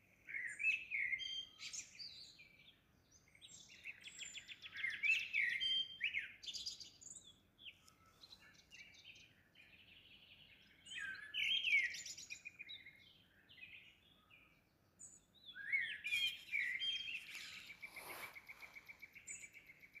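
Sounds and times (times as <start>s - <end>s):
songbirds warbling and trilling: 0.0s - 20.0s
falling swish: 17.5s - 18.8s.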